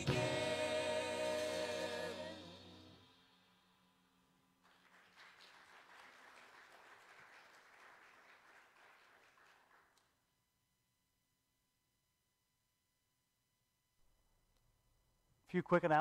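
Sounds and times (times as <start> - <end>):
music: 0.0 - 3.3
faint applause: 4.6 - 10.1.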